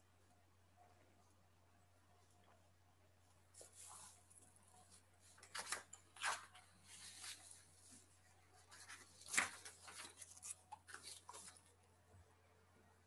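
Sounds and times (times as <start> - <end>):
low steady hum: 0.0 - 13.0
rustling and scraping: 3.5 - 11.7.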